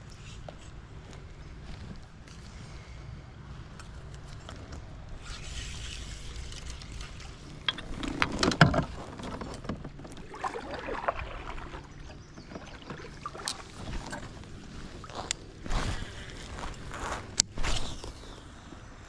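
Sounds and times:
gear knocking and rattling in kayak: 7.5 - 15.2.

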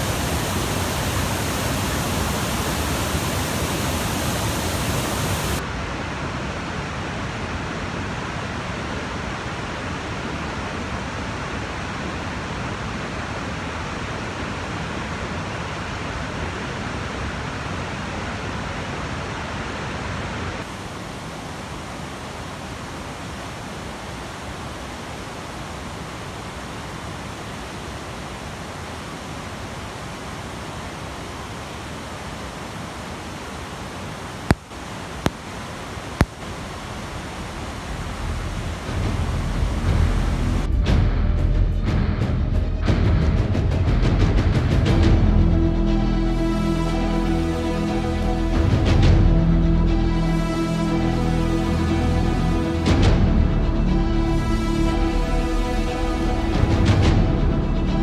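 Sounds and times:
floodwater rushing: 0.0 - 40.7.

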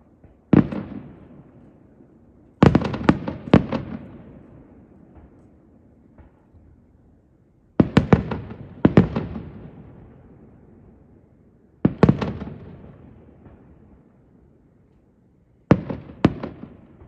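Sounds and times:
fireworks bursting with bangs: 0.0 - 1.6, 2.6 - 5.4, 7.8 - 10.2, 11.8 - 13.9, 15.7 - 17.0.

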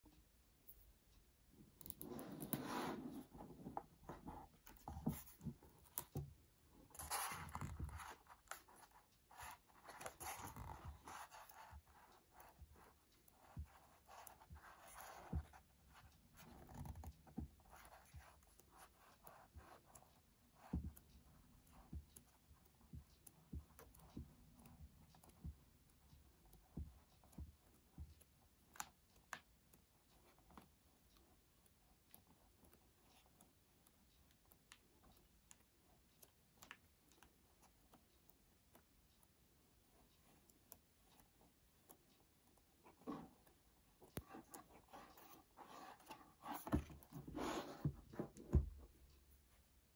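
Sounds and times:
book pages turning: 7.0 - 11.5, 44.2 - 48.6.

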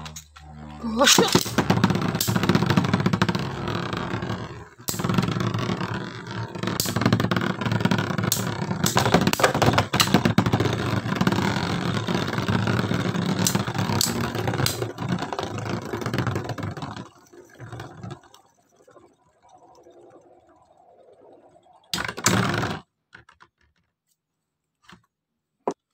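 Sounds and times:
spinning tops whirring and grinding: 0.0 - 22.8
spinning tops clacking: 1.0 - 16.8.

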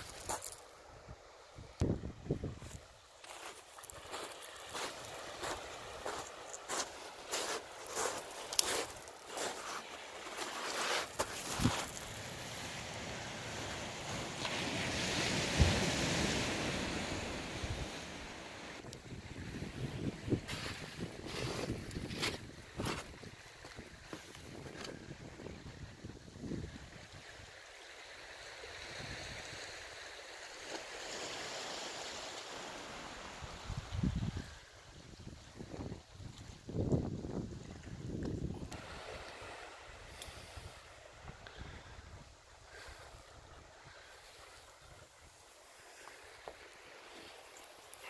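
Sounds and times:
surf on rocky shore: 0.0 - 48.0
wind rumbling on microphone: 1.7 - 2.9, 18.8 - 27.2, 33.6 - 38.9.

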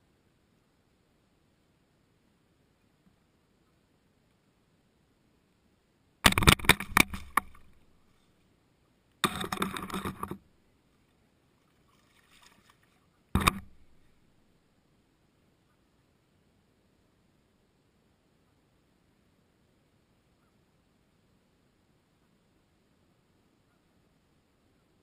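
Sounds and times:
camera handling knocks and rustling: 6.3 - 7.8, 9.2 - 10.4, 13.4 - 14.0.

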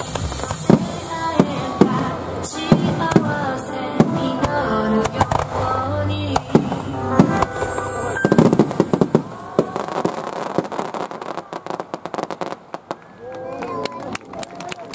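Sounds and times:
music playing: 0.0 - 10.5
fireworks bursting: 0.0 - 13.2
crackling fireworks pops: 0.0 - 14.9.

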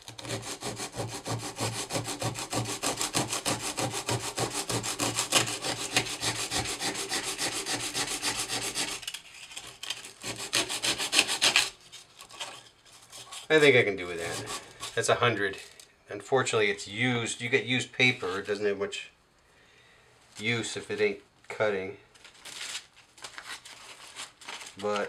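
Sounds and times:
sandpaper rubbing on metal: 0.2 - 9.0, 10.2 - 11.8, 13.0 - 15.0.

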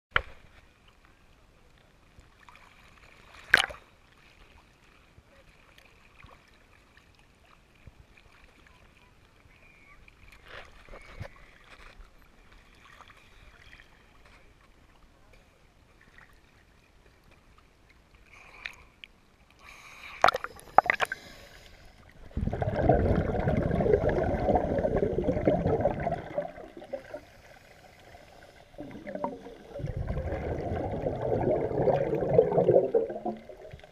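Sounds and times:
underwater bubbling and rushing: 20.2 - 33.9
water sloshing and splashing: 22.0 - 33.9.

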